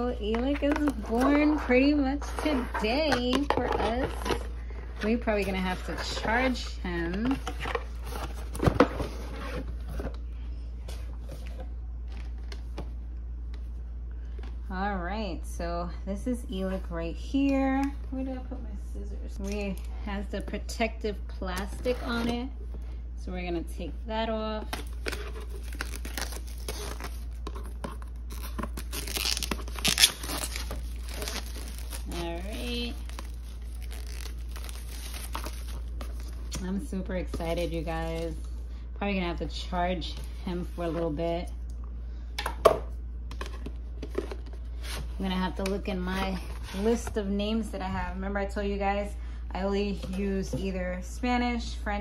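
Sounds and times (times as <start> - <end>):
plastic wrap tearing and crinkling: 24.8 - 36.6.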